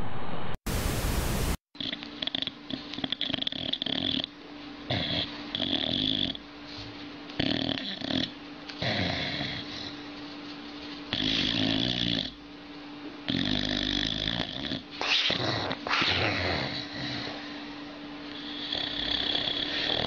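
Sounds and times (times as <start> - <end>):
dog snoring: 1.8 - 6.5, 7.4 - 10.1, 11.1 - 12.4, 13.3 - 17.7, 18.3 - 20.0.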